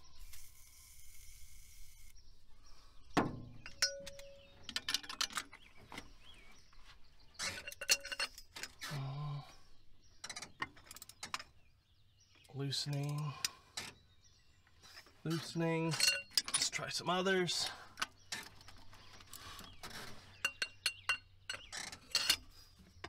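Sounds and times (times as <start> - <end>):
wrench clinking on metal: 3.6 - 5.7, 7.4 - 8.8, 15.9 - 16.8, 20.4 - 22.5.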